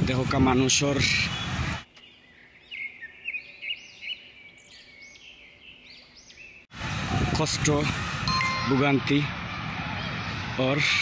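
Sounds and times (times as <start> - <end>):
road noise: 0.0 - 2.1, 4.2 - 11.0
person speaking: 8.3 - 9.3.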